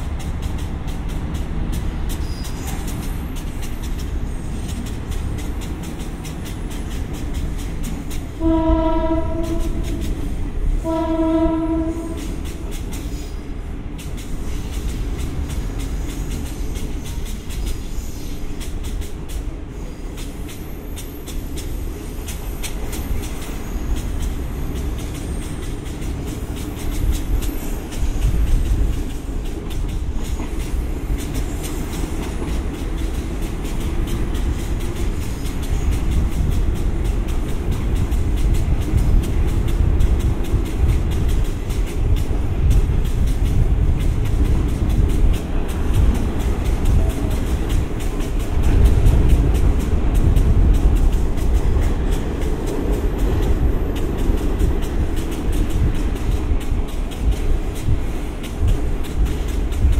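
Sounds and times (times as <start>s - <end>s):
train horn blasts: 8.3s - 12.6s.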